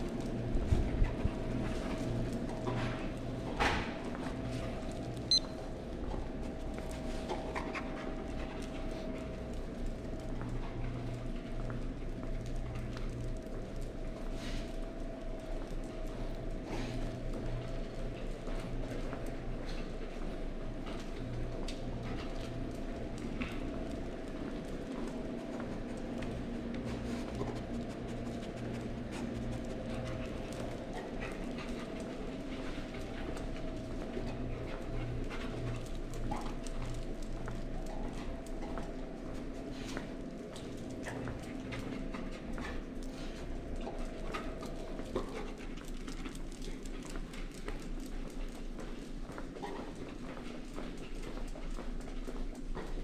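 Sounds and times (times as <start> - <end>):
steady electrical hum: 0.0 - 53.0
dog claws clicking on floor: 6.0 - 53.0.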